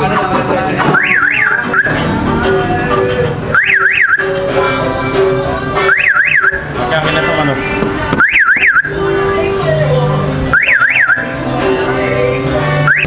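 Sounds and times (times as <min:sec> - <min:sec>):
music-like notes: 0:00.0 - 0:13.0
siren-like warble bursts: 0:01.0 - 0:04.4.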